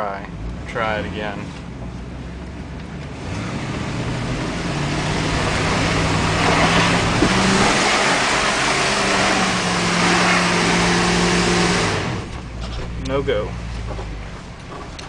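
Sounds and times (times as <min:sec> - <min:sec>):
truck engine revving hard: 0:03.1 - 0:12.4
tires spinning in mud: 0:03.1 - 0:12.8.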